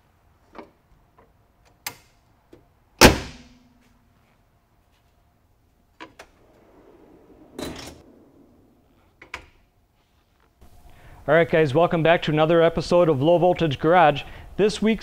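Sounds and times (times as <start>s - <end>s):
car hood slamming shut: 3.0s - 3.5s
soft scraping: 9.8s - 10.6s.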